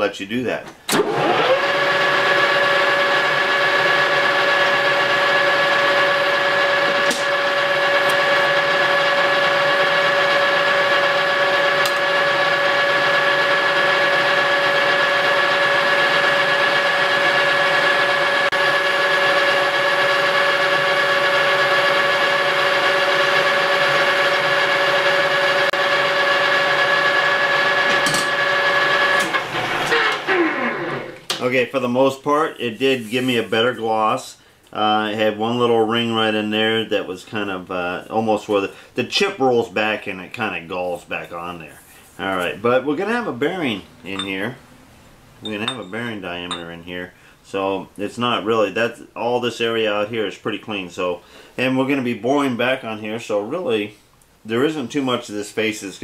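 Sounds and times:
metal lathe whining: 1.0s - 31.2s.

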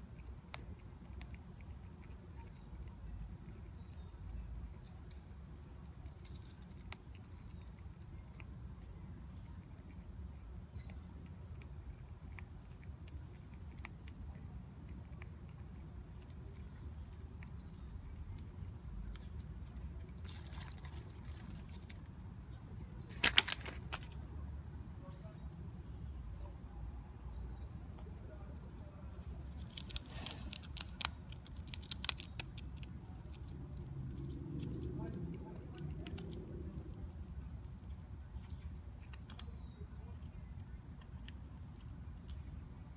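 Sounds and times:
squirrel gnawing a peanut: 0.0s - 42.9s
low steady rumble: 24.0s - 42.9s.

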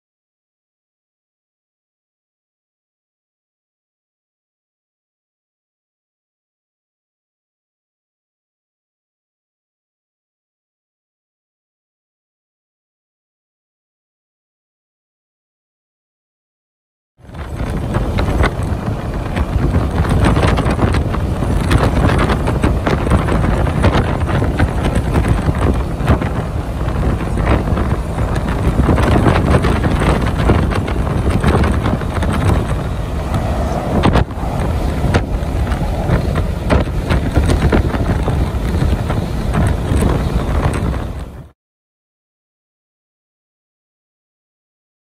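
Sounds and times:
road and engine noise: 17.2s - 41.5s
wind buffeting microphone: 17.2s - 41.5s.

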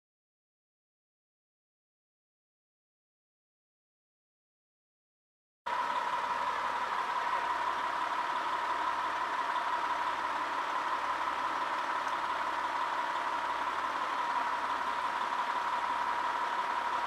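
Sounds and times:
diesel engine idling: 5.7s - 17.0s.

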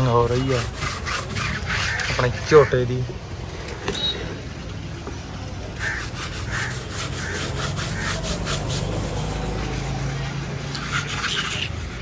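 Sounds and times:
rhythmic rubbing strokes: 0.0s - 2.8s, 5.8s - 12.0s.

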